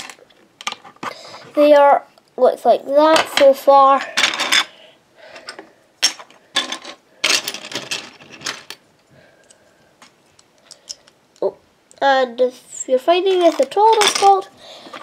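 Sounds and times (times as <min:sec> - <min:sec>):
plastic toy bricks clattering: 0:06.0 - 0:08.8, 0:13.3 - 0:15.0.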